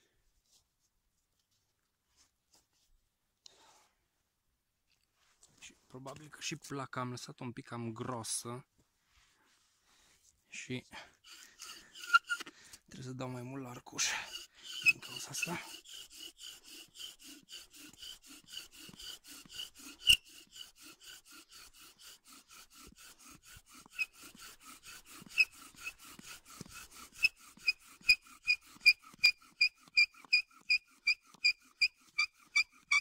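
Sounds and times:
bow drill rubbing: 11.0 - 33.0
bow drill squeaks: 11.2 - 12.5, 13.8 - 21.8, 23.0 - 33.0.

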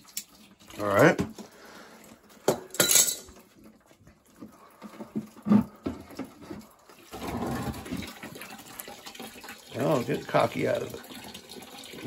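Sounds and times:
water pouring into plastic bucket: 0.0 - 2.5, 3.4 - 12.0.

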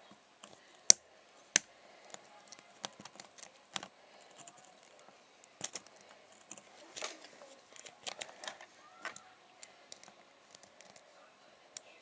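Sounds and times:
lock pick clicking and scraping: 2.1 - 11.1.

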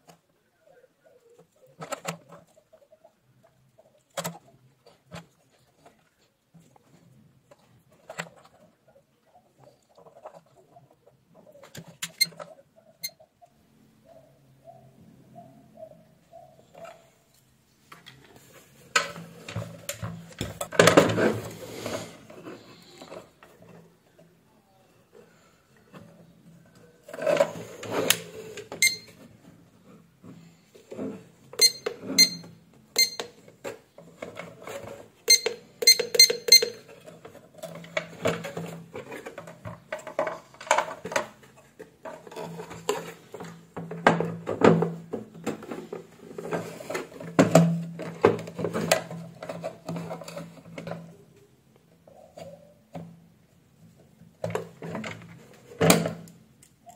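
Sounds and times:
sharp ringing clicks: 31.6 - 33.3.

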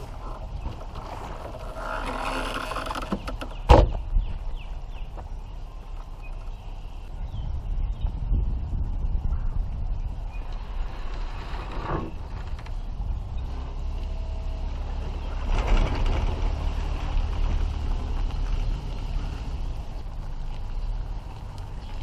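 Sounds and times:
trailer frame creaking and rattling: 0.0 - 6.8, 10.4 - 22.0
vehicle rumbling slowly: 0.0 - 22.0
loud clatter: 15.1 - 18.6.

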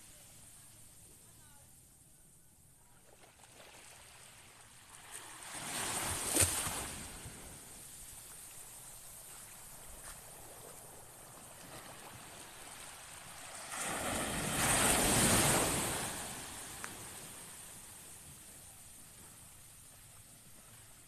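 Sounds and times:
low surf washing on beach: 4.4 - 21.0
wave breaking on shore: 11.7 - 18.0.

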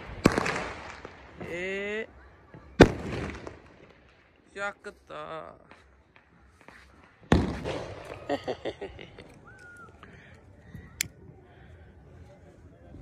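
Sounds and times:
sharp crack: 0.0 - 1.2
firecracker bang: 0.0 - 1.6, 2.6 - 4.0, 6.7 - 8.4.

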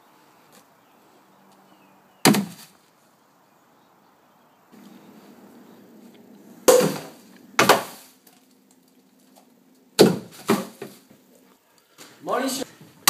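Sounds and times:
plastic bottles knocking into bin: 10.0 - 11.0.

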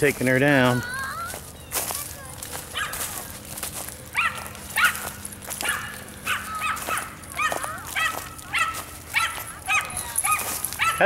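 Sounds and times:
dog barking: 2.7 - 3.2, 4.1 - 11.0.

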